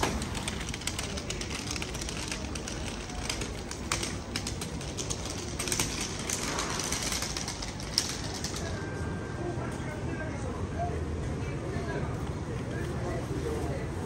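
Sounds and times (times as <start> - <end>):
sharp clicks and clatter: 0.0 - 8.9
market background din: 0.0 - 14.0.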